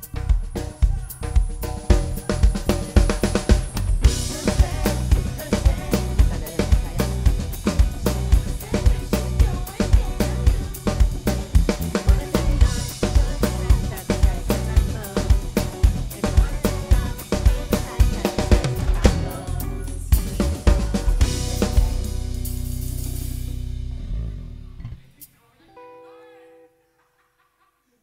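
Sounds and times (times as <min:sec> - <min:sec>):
drum kit groove: 0:00.0 - 0:24.6
keyboard and bass notes: 0:00.0 - 0:25.1
cymbal crashes: 0:21.2 - 0:24.6.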